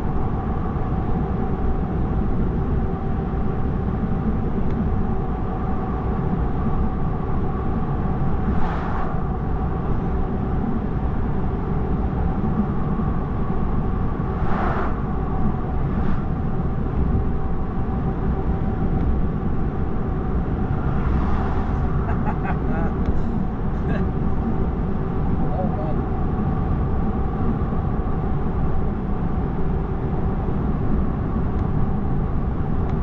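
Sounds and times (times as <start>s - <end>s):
faint steady hum: 0.0s - 33.0s
road and wind noise in car: 0.0s - 33.0s
vehicles passing by: 20.0s - 24.6s.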